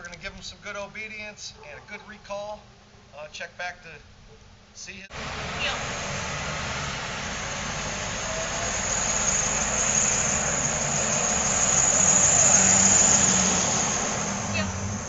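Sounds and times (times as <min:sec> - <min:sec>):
vehicle engines passing: 0:05.1 - 0:15.0.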